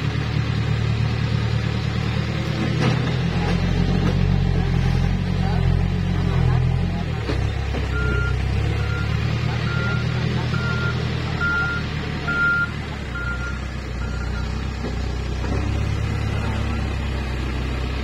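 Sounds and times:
diesel engine running: 0:00.0 - 0:18.0
reversing alarm beeping: 0:07.9 - 0:14.6.

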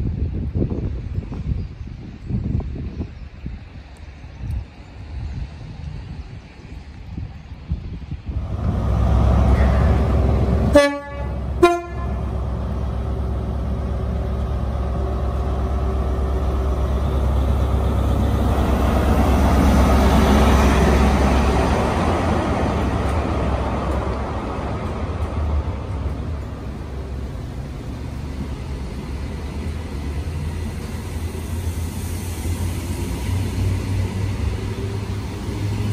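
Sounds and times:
train passing with rumble: 0:00.0 - 0:35.9
train horn: 0:10.7 - 0:12.3.

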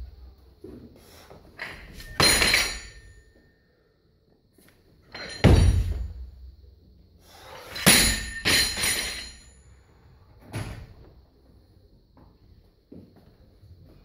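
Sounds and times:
barbell dropped on floor: 0:01.6 - 0:03.2, 0:05.1 - 0:06.3, 0:07.7 - 0:09.5.

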